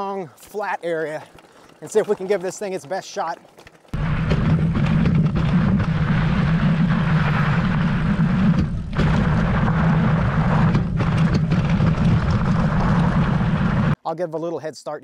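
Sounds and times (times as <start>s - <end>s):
tire rolling on gravel: 0.0s - 14.0s
wind buffeting microphone: 3.9s - 14.0s.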